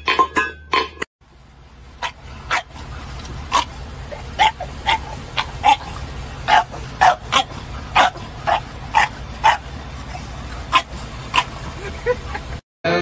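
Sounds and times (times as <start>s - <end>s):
steady low rumble: 1.2s - 12.6s
dog barking: 2.0s - 2.8s, 3.5s - 11.6s.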